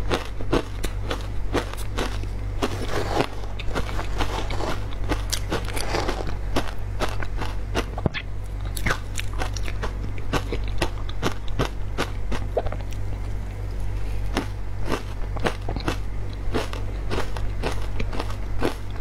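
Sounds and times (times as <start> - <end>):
crunching frozen ice: 0.2 - 8.0.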